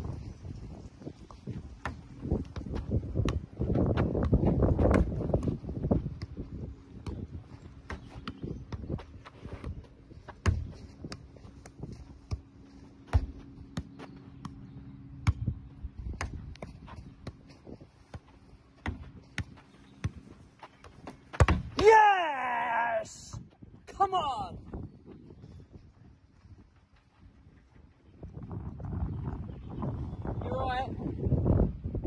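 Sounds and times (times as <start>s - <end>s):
man shouting: 21.8s - 24.6s.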